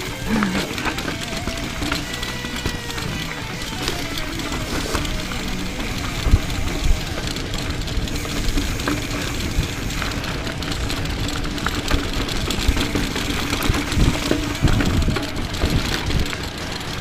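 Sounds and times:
bike knocking on rocks: 0.0 - 17.0
bike rattling: 0.0 - 17.0
bike tyres crunching over gravel: 0.0 - 17.0.

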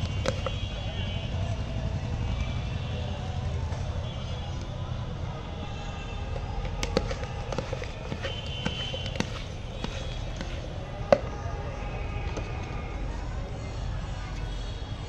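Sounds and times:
metal spoon knocking plastic mug: 0.0 - 0.6, 6.4 - 11.3.

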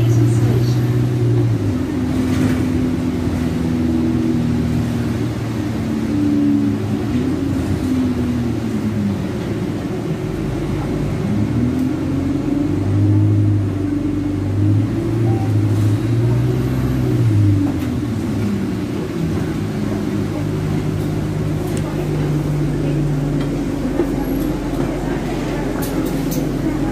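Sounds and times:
bus diesel engine accelerating: 0.0 - 26.9.

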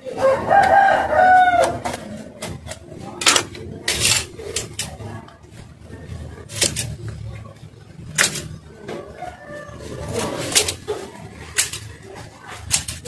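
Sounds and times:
rooster crowing: 0.0 - 2.2, 8.9 - 10.5.

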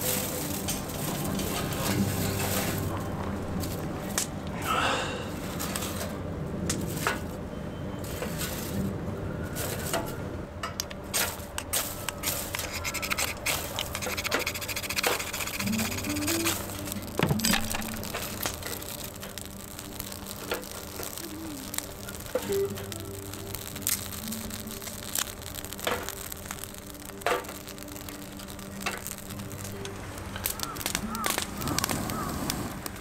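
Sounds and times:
dry tinder rustling: 0.0 - 4.6, 8.0 - 10.2, 11.0 - 33.0
tinder crackling: 0.0 - 33.0
knife scraping fire-starter rod: 11.1 - 32.7.

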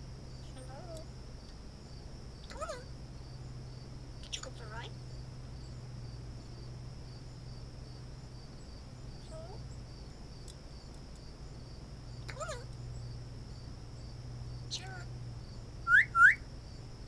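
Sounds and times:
crickets chirping: 0.0 - 17.0
low steady hum: 0.0 - 17.0
bird whistling call: 15.9 - 16.4.

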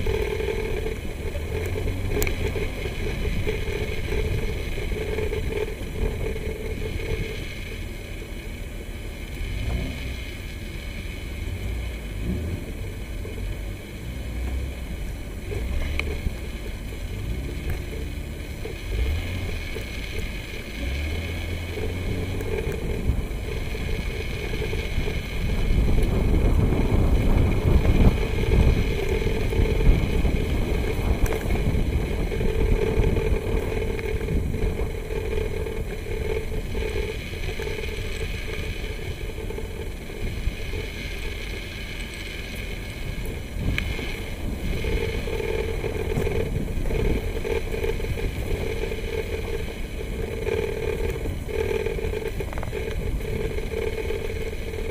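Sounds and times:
tyres on dirt: 0.0 - 54.9
vehicle engine rumble: 0.0 - 54.9
steady hum: 14.8 - 54.9.

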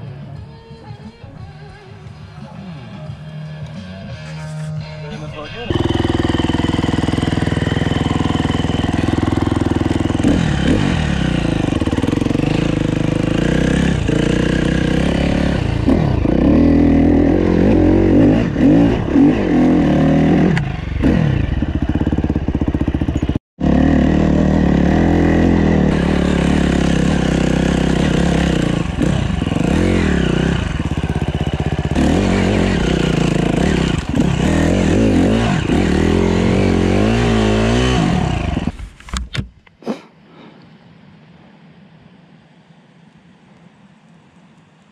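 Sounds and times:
dirt bike engine revving: 4.2 - 38.8.

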